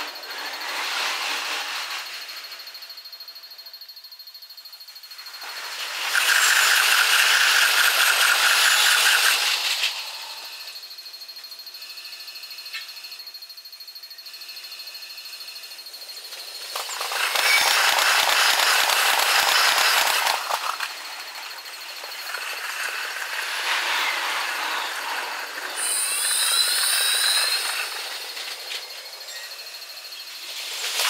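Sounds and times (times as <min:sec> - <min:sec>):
electric train passing: 0:00.0 - 0:12.3, 0:14.9 - 0:31.0
rising whines: 0:05.2 - 0:13.3, 0:14.5 - 0:31.0
wheel clatter: 0:16.4 - 0:29.5.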